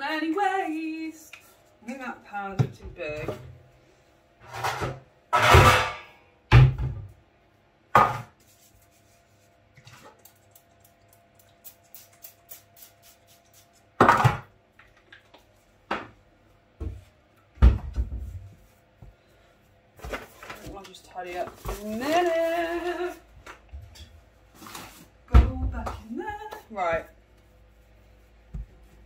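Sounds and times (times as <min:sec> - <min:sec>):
metal baking tin clanking: 0:05.4 - 0:06.1.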